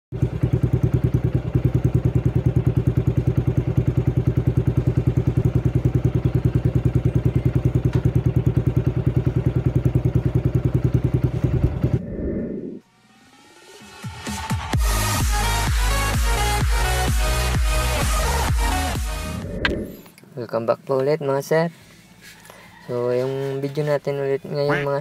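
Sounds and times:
motorcycle engine idling: 0.1 - 12.0.

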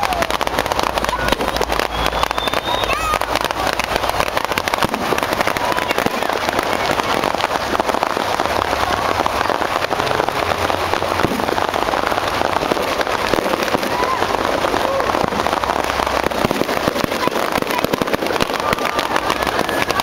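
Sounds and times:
fireworks crackling: 0.0 - 20.0
people talking: 0.0 - 20.0.

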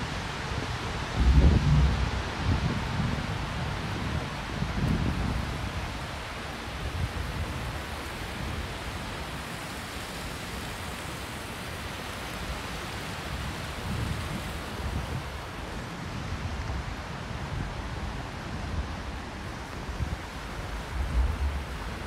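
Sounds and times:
wind buffeting microphone: 0.0 - 9.2, 13.2 - 22.0
river rushing: 0.0 - 22.0.

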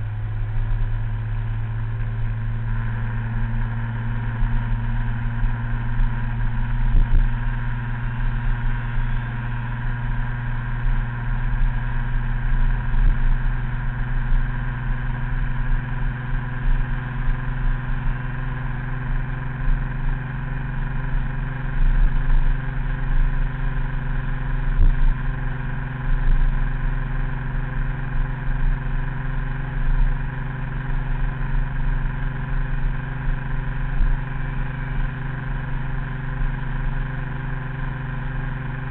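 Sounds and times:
wind rumble on microphone: 0.0 - 18.3, 24.6 - 26.8
scooter engine running: 0.0 - 38.9.

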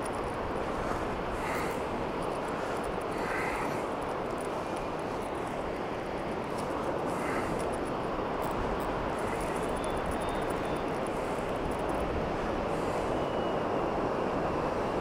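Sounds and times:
wind blowing across microphone: 0.0 - 15.0.

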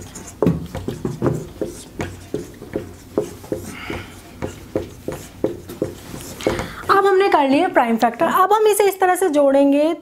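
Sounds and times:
marker tapping and squeaking on whiteboard: 0.0 - 7.1.

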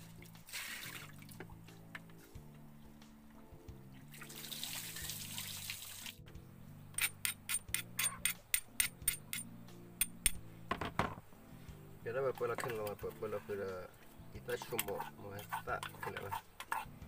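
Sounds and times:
water running: 0.0 - 1.6, 3.8 - 6.2
soft background music: 0.0 - 17.0.

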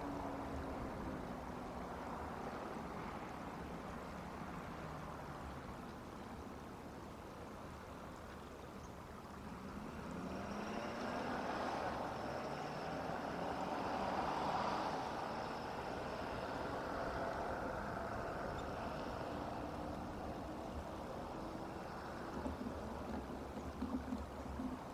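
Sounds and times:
distant vehicle passing: 9.1 - 24.9.

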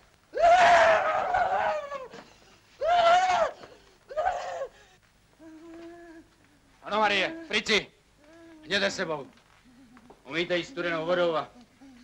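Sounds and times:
woman screaming hysterically: 0.4 - 2.2, 2.8 - 4.7.

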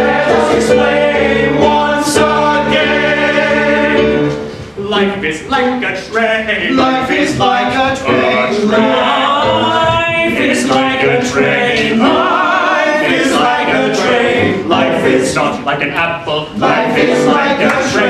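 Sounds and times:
men singing in harmony: 0.0 - 4.4, 6.0 - 15.7, 16.5 - 18.0.

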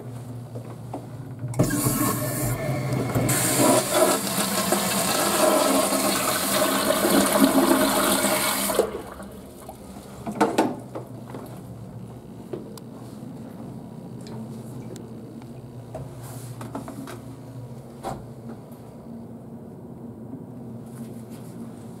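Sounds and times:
toilet flushing: 1.5 - 9.9.

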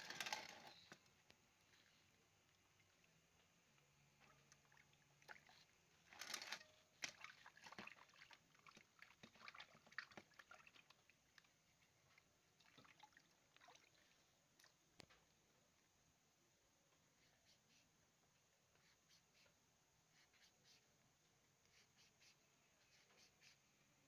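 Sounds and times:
water sloshing in a steel bowl: 2.0 - 14.8
small splashes and knocks: 2.4 - 15.4.

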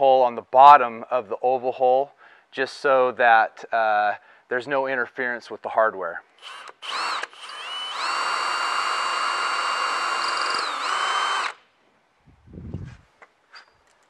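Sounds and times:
cordless drill boring into wood: 6.4 - 11.6.

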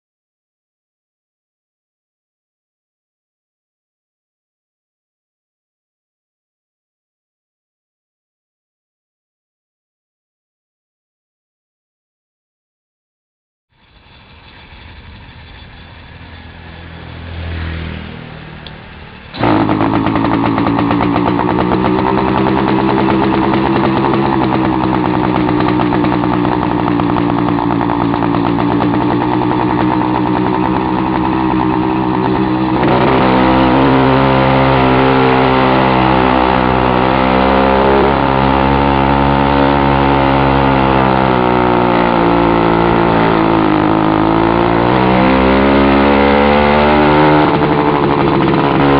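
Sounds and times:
loud two-stroke bicycle engine: 13.8 - 48.9.

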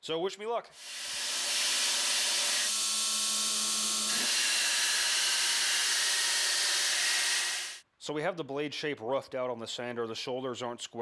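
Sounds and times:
belt sander grinding metal: 0.8 - 7.8.

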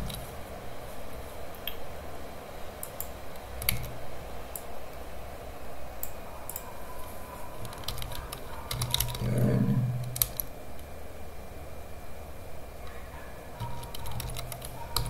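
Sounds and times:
keyboard keystrokes: 7.6 - 9.4, 13.6 - 15.0
short low hum: 9.2 - 10.2.

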